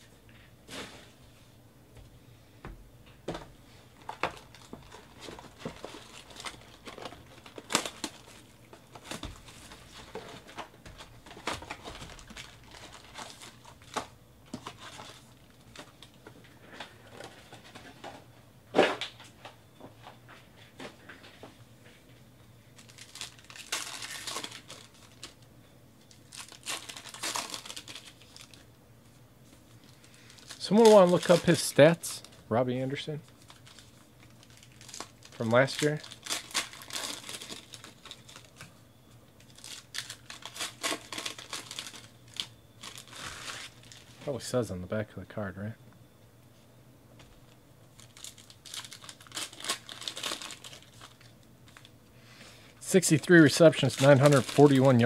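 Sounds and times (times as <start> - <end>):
cardboard and wrapper rustling: 4.0 - 18.2, 22.8 - 25.4, 26.0 - 28.6, 29.8 - 32.3, 33.3 - 44.2, 48.0 - 51.9, 53.0 - 55.0
wrappers ripping: 22.8 - 25.4, 26.1 - 28.7, 29.9 - 32.0, 33.3 - 38.6, 39.4 - 44.1, 48.0 - 51.9, 53.2 - 55.0.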